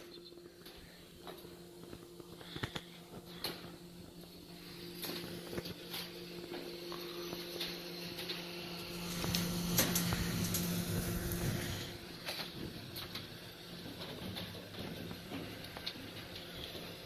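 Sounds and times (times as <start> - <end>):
steady low hum: 0.0 - 17.0
footsteps on steel grating: 0.6 - 16.9.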